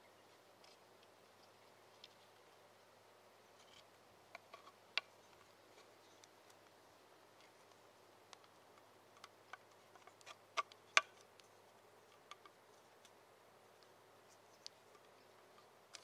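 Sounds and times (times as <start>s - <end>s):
light clicks and taps: 13.8s - 16.0s.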